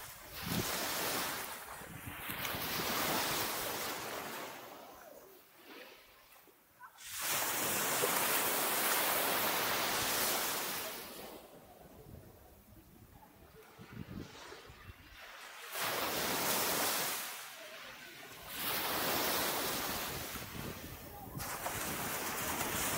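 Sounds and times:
small waves breaking on sand: 0.0 - 22.9.

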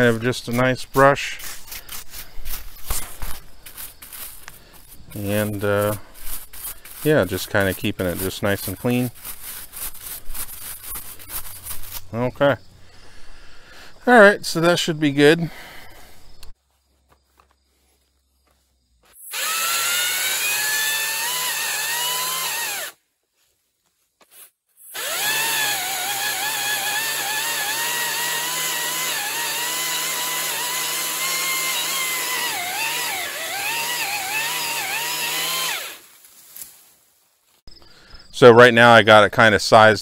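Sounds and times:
pole saw cutting branch: 1.3 - 12.1, 19.2 - 23.0, 24.8 - 36.8.

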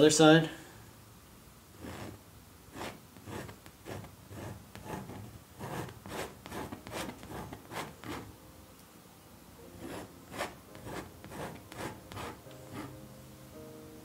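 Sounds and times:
palette knife scraping canvas: 1.8 - 8.3, 9.8 - 13.0.

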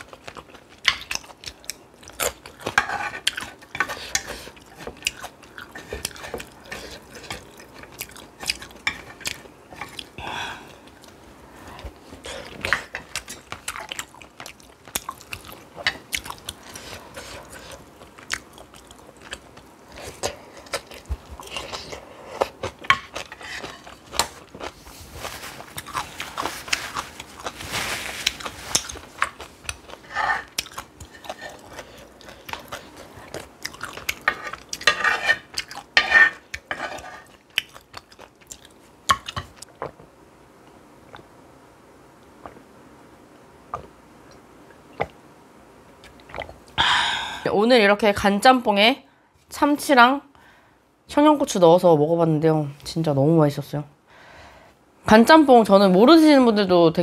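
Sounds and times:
person chewing and crunching: 0.0 - 11.2, 11.8 - 40.0.

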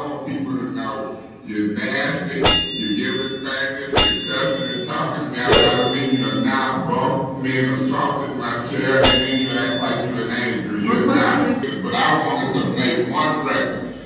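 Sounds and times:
sharp metallic strike: 2.4 - 6.6, 9.0 - 10.0.

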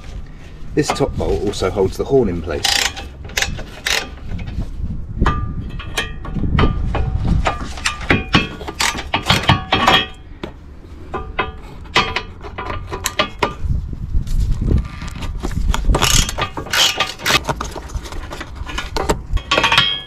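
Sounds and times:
ratchet clicking: 2.6 - 4.2.

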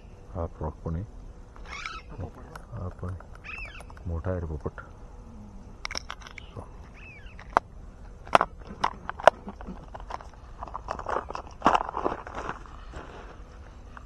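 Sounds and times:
footsteps on dry ground: 9.9 - 14.0.

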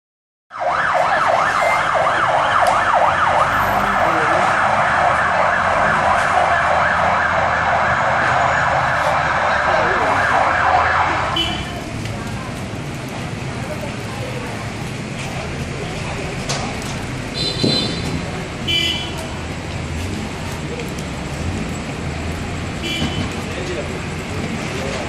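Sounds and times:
fire engine siren yelping: 0.5 - 11.9.

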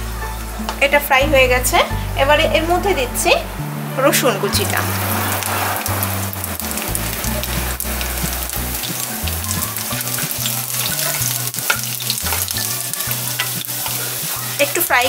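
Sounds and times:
garlic sizzling in hot oil: 4.6 - 15.0.

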